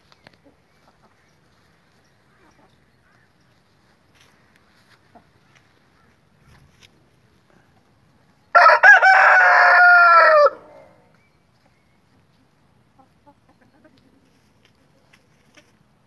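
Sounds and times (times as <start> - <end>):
rooster crowing: 8.5 - 11.0
soft clucks: 12.9 - 15.8.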